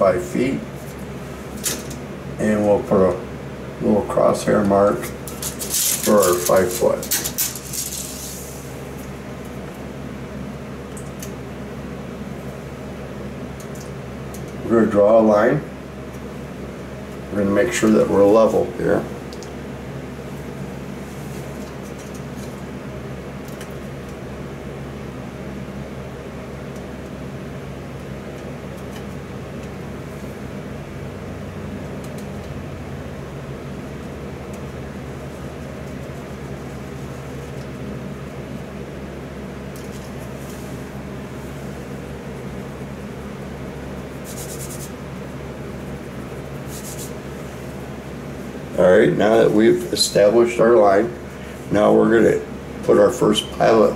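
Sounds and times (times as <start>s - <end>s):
machine humming with hiss: 0.0s - 53.9s
pencil scratching on painted wall: 44.2s - 45.0s, 46.1s - 47.2s.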